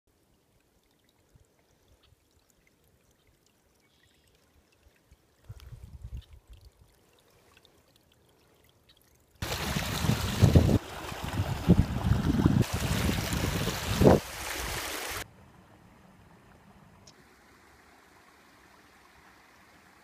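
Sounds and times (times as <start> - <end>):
water rushing through a dam: 9.4 - 15.2.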